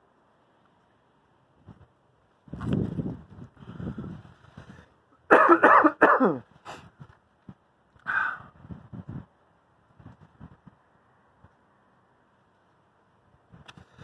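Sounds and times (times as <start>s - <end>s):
man coughing: 5.3s - 6.5s.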